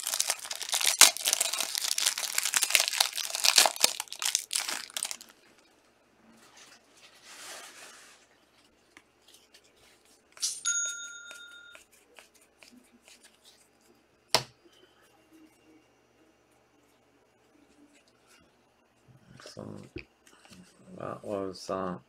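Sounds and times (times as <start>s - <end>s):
wrappers rustling: 0.0s - 5.4s
bell-like chime: 10.6s - 11.8s.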